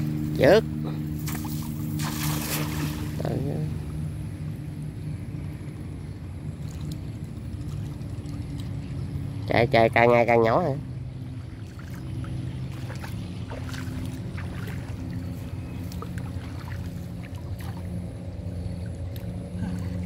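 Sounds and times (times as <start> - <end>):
low motor hum: 0.0 - 20.0
water sloshing around wading person: 1.0 - 3.5, 6.5 - 9.0, 11.2 - 20.0.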